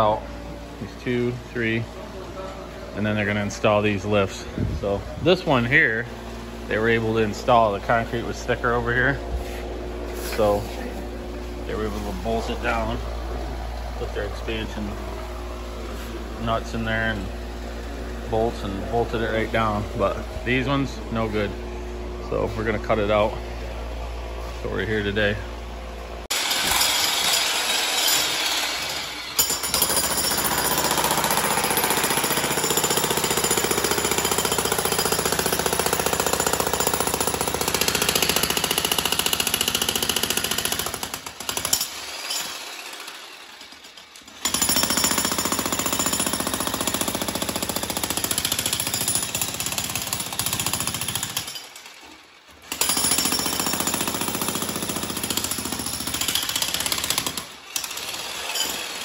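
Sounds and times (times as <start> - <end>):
breaker hammer hammering concrete: 26.3 - 43.2, 43.8 - 59.0.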